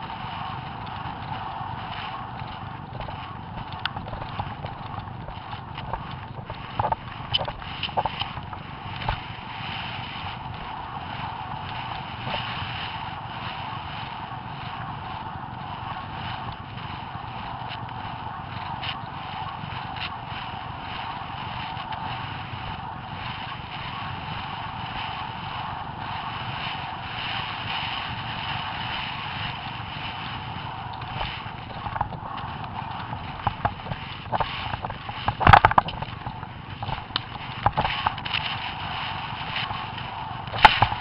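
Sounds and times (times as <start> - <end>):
hooves galloping: 0.0 - 9.5, 10.2 - 41.0
steady rushing noise: 0.0 - 41.0.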